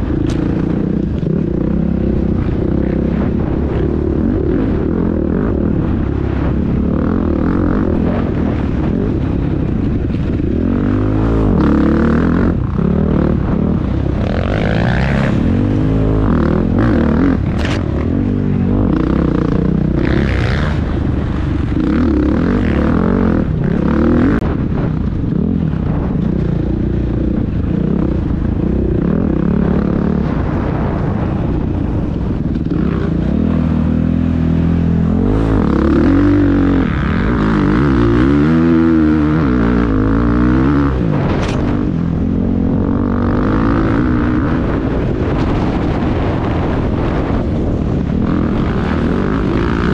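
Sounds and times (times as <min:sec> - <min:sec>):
dirt bike engine revving: 0:00.0 - 0:49.9.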